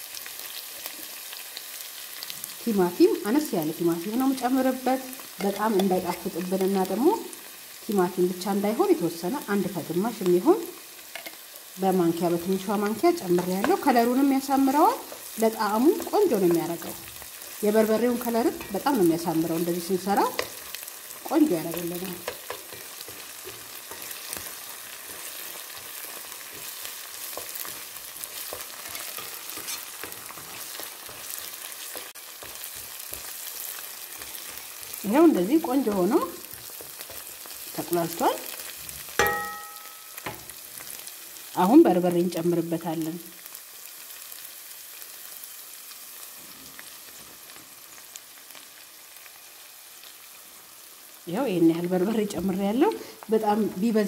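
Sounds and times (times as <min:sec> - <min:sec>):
onion and tomato sizzling: 0:00.0 - 0:54.0
wooden spatula scraping a pan: 0:21.6 - 0:37.8.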